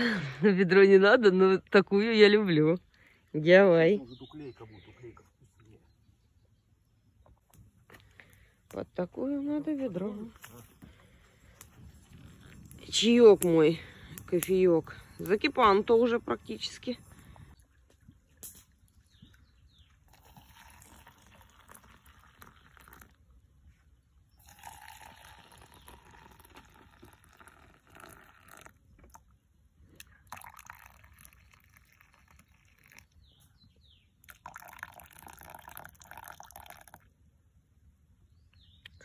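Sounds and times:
hot water pouring into metal mugs: 10.1s - 17.8s, 19.9s - 23.4s, 24.3s - 33.4s, 34.2s - 37.1s.

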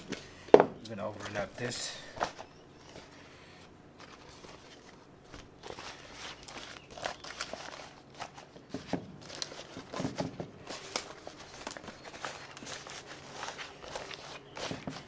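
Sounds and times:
leaves rustling and crinkling: 3.9s - 15.0s.

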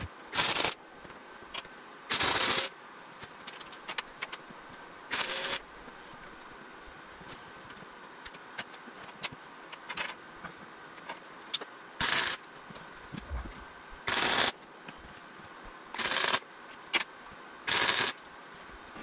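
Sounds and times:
welding arc bursts: 0.0s - 0.8s, 2.1s - 2.7s, 5.1s - 5.6s, 12.0s - 12.4s, 14.1s - 14.6s, 16.0s - 16.4s, 17.7s - 18.2s.

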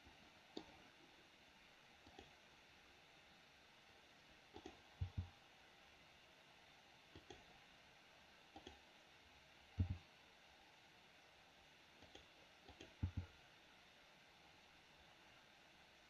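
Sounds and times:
mouse and keyboard clicks: 7.1s - 7.5s, 8.6s - 8.8s, 12.0s - 13.3s.

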